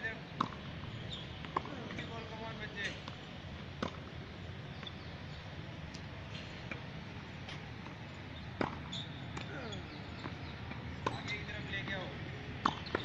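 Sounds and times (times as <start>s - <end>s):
tennis ball struck: 0.4s - 0.7s, 1.4s - 2.1s, 3.8s - 5.0s, 7.8s - 13.0s.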